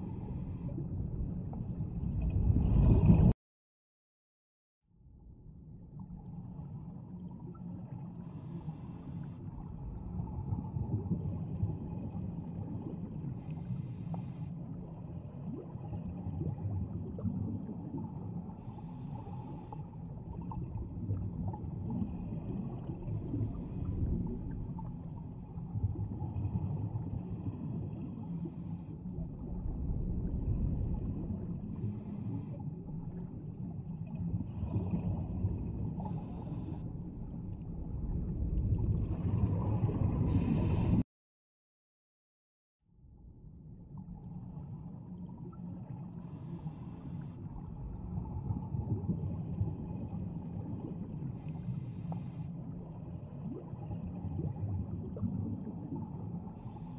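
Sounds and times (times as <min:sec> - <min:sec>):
exhaled bubbles rumbling: 0:00.0 - 0:03.4, 0:09.4 - 0:13.8, 0:14.6 - 0:41.0, 0:43.2 - 0:46.7, 0:47.4 - 0:51.9, 0:52.6 - 0:56.9
regulator inhalation hiss: 0:46.3 - 0:47.3.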